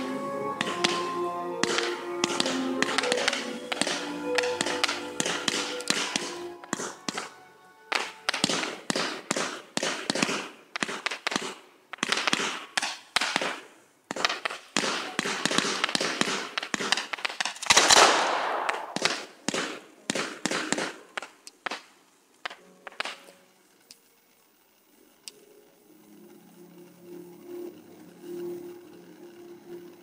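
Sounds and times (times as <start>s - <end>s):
fireworks launching: 0.0s - 23.5s
fireworks popping and crackling: 0.0s - 24.1s.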